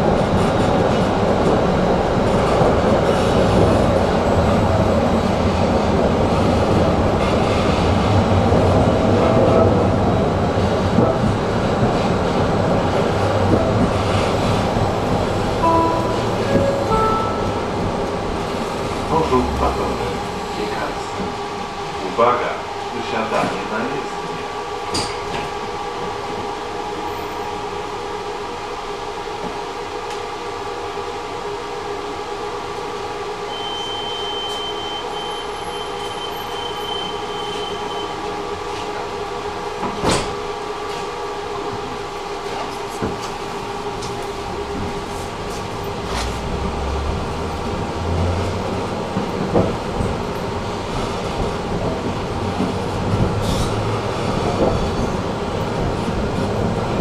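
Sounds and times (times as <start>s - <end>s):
tram electric hum: 0.0s - 57.0s.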